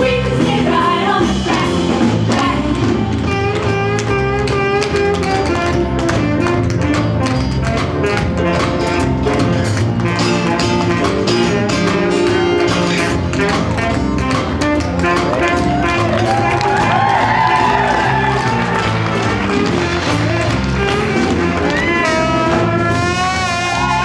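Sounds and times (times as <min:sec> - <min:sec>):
live band playing: 0:00.0 - 0:24.0
tap shoes clicking on wooden stage: 0:03.1 - 0:22.2.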